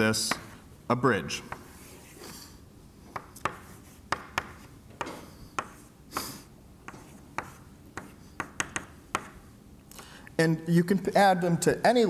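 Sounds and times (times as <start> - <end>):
chalk tapping on blackboard: 0.2 - 0.6, 1.5 - 2.2, 3.1 - 9.5
chalk scratching on blackboard: 1.5 - 2.5, 3.1 - 9.5.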